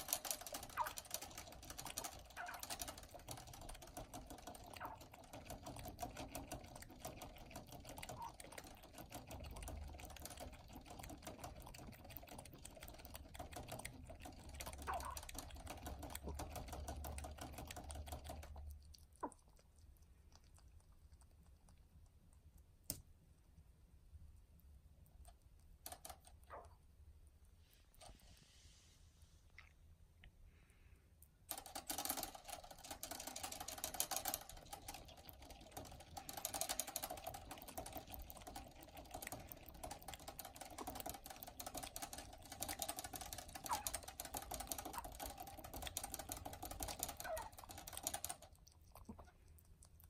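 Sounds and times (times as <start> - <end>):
rabbit lapping at water bottle: 0.0 - 50.0.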